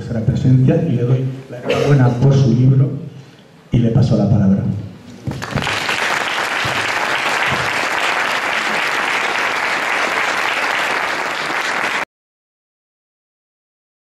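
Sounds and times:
audience applauding: 5.3 - 12.1.

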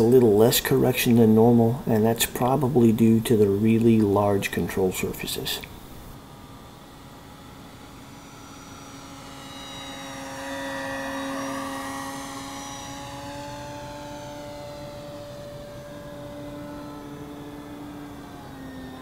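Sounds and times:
model plane propeller drone: 0.0 - 19.0.

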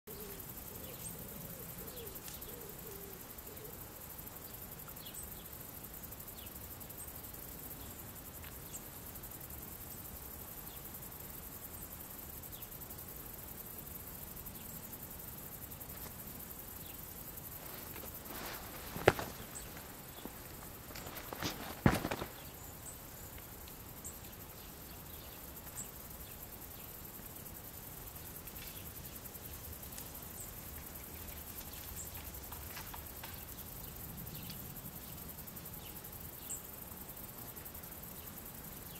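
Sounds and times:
insects chirring: 0.1 - 38.9.

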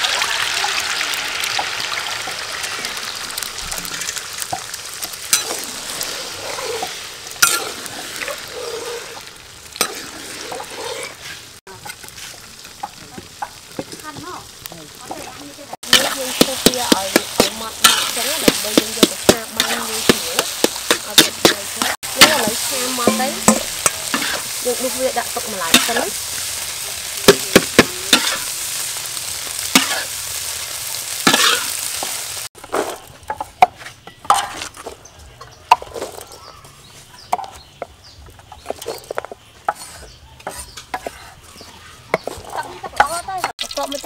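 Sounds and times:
eggs sizzling in oil: 0.0 - 44.0
metal spatula scraping wok: 4.1 - 13.6, 15.1 - 30.4, 31.1 - 35.0, 38.6 - 43.5.

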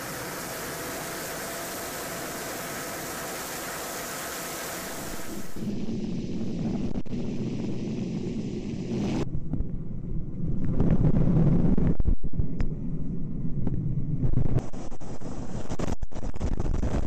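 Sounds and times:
helicopter rotor and turbine rumble: 0.0 - 16.7
wind buffeting microphone: 5.3 - 17.0.

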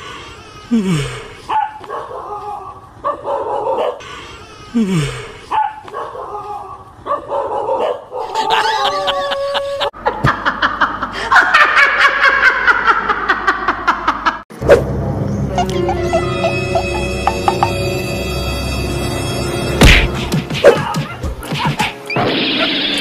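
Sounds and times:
woman laughing loudly: 8.2 - 14.4, 15.5 - 17.5.

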